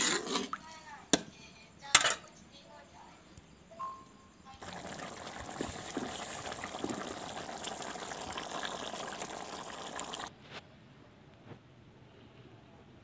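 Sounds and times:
curry bubbling and boiling: 0:04.6 - 0:10.3.

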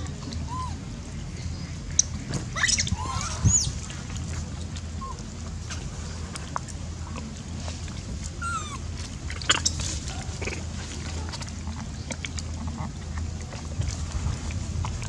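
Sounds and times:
steady low hum: 0:00.0 - 0:15.0
monkey squealing: 0:00.4 - 0:00.8, 0:02.5 - 0:03.8, 0:08.4 - 0:08.8.

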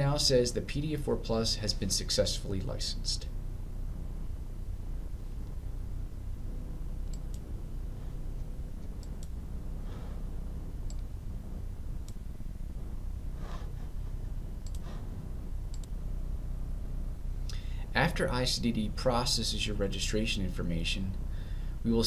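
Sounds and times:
steady low hum: 0:00.0 - 0:22.0
computer mouse clicking: 0:07.0 - 0:07.5, 0:08.4 - 0:09.4, 0:12.0 - 0:12.2, 0:14.6 - 0:14.9, 0:15.7 - 0:16.0.

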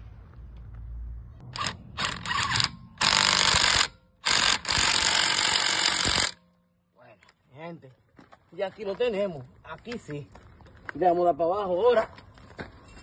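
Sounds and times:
impact wrench bursts: 0:01.6 - 0:06.4.

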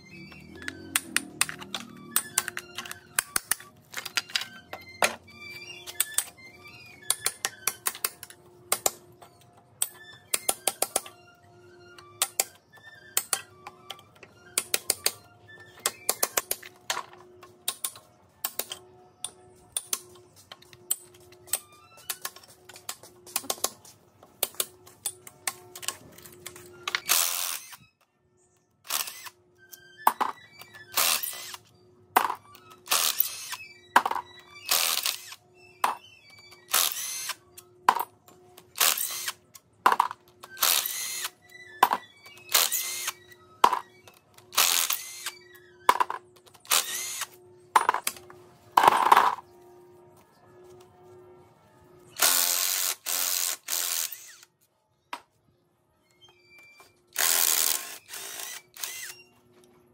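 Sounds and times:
hand tools clicking and tapping: 0:00.3 - 0:06.4, 0:07.0 - 0:11.2, 0:12.2 - 0:27.2, 0:37.6 - 0:45.3.

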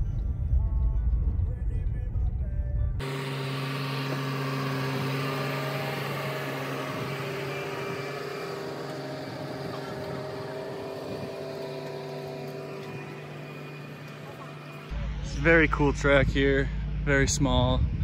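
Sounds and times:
tractor diesel engine passing: 0:03.0 - 0:17.7.

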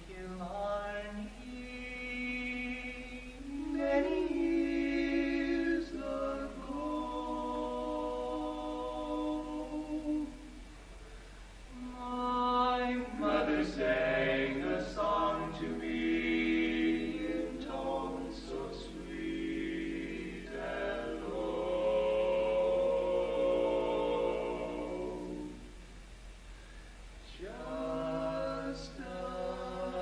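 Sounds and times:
male quartet singing a cappella: 0:00.0 - 0:10.6, 0:11.7 - 0:25.8, 0:27.2 - 0:30.0.

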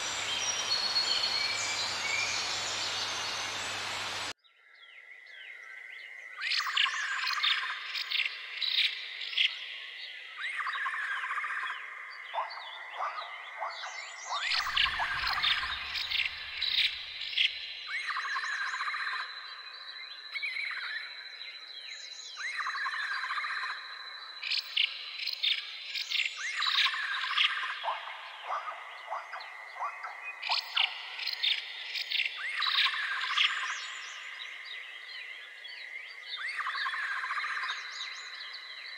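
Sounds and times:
high insect drone: 0:00.0 - 0:04.3
birds chirping: 0:00.0 - 0:04.4, 0:12.3 - 0:18.4.

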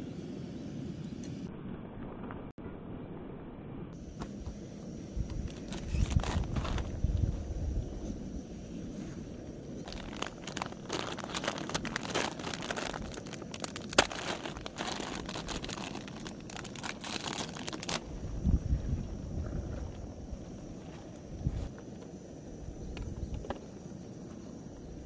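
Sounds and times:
material crinkling and rustling: 0:05.5 - 0:06.9, 0:09.8 - 0:18.0
sharp crack: 0:09.9 - 0:18.0.

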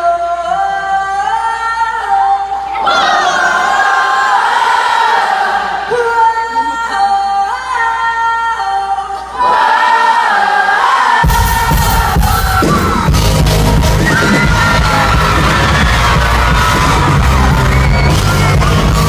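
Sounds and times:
choir singing held chords: 0:02.7 - 0:06.1, 0:09.2 - 0:12.5
rock band playing loudly: 0:11.3 - 0:19.0.

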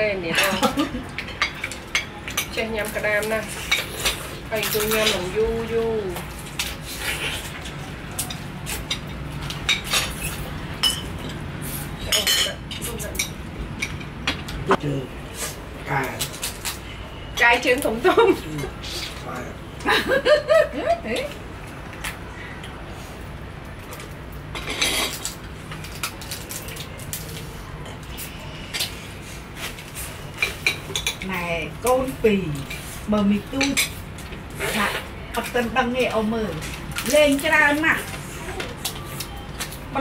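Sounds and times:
dishes and cutlery clinking: 0:00.4 - 0:05.4, 0:07.4 - 0:11.4, 0:12.1 - 0:14.5, 0:23.9 - 0:25.4, 0:30.3 - 0:31.4.

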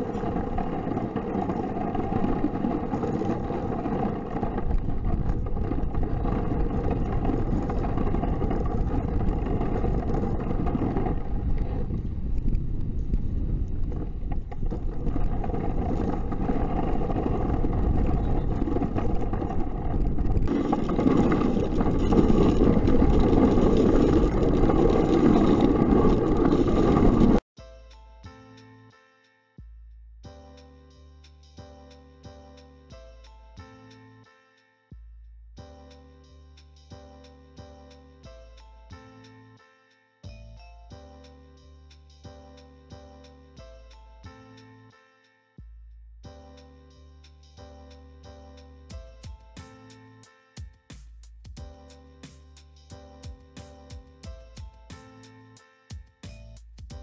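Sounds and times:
sled scraping over snowy ice: 0:00.0 - 0:27.4.

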